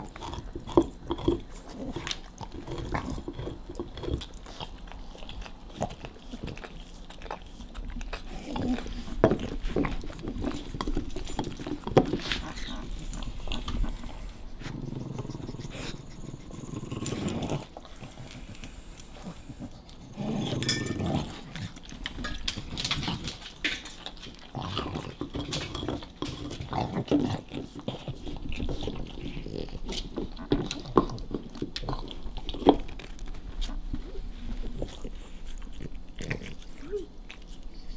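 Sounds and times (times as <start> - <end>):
dog growling: 0.0 - 6.7, 8.1 - 22.0, 24.5 - 31.2.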